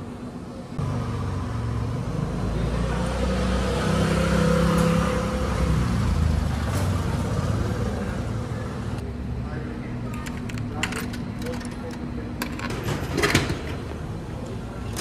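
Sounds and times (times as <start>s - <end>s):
vehicle engine passing: 0.8s - 9.0s.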